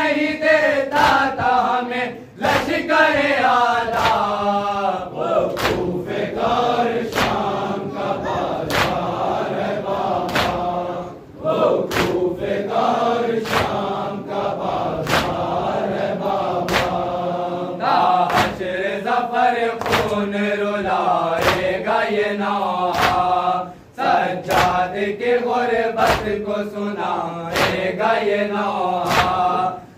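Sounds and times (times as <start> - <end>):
men chanting a lament: 0.0 - 29.9
chest-beating slaps: 3.9 - 4.3, 5.5 - 6.0, 7.0 - 7.6, 8.3 - 9.3, 10.0 - 10.8, 11.9 - 12.3, 13.4 - 13.9, 15.0 - 15.6, 16.6 - 17.2, 18.2 - 18.7, 19.8 - 20.2, 21.4 - 21.8, 22.9 - 23.4, 24.4 - 24.9, 26.0 - 26.4, 27.5 - 28.0, 29.0 - 29.5.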